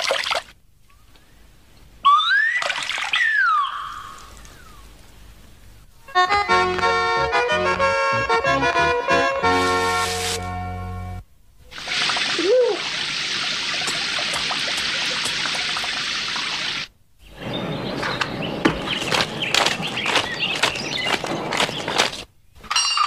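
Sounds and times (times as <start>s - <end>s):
accordion music: 6.1s - 11.2s
cartoon rain hiss: 9.5s - 10.6s, 11.7s - 14.2s, 14.9s - 16.9s.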